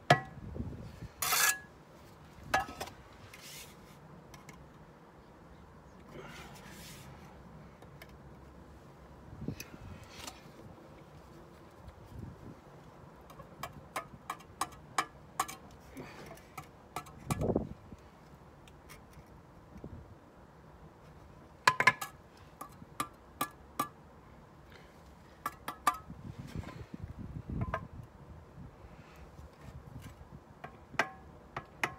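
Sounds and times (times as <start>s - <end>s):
trowel tapping bricks: 13.3s - 15.7s, 30.6s - 31.9s.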